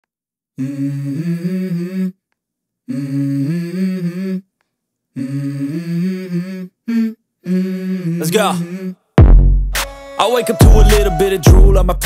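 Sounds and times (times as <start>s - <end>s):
person humming: 0.6s - 2.2s, 2.9s - 4.5s, 5.2s - 9.0s, 10.4s - 12.0s.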